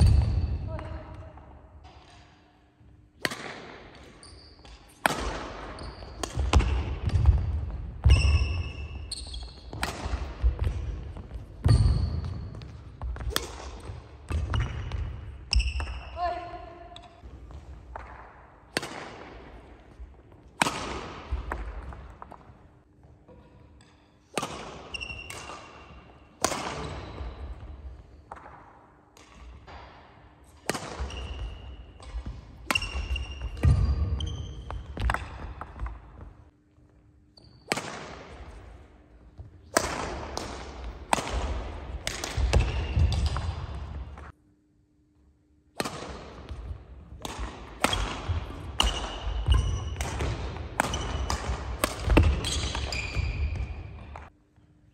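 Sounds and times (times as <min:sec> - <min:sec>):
racket striking shuttlecock: 0:03.2 - 0:16.0, 0:17.9 - 0:19.6, 0:20.5 - 0:22.3, 0:23.8 - 0:27.6, 0:28.3 - 0:34.0, 0:37.6 - 0:38.6, 0:39.4 - 0:44.0, 0:45.8 - 0:54.3
shoes squeaking on court floor: 0:03.9 - 0:17.8, 0:22.3 - 0:28.4, 0:30.8 - 0:36.4, 0:37.2 - 0:37.8, 0:47.8 - 0:54.3.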